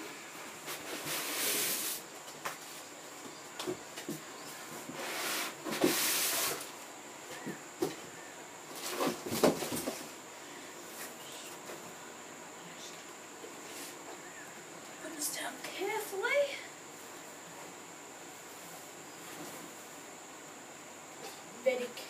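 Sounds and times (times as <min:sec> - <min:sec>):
cardboard scraping and rustling: 0:04.8 - 0:06.7, 0:08.7 - 0:10.2.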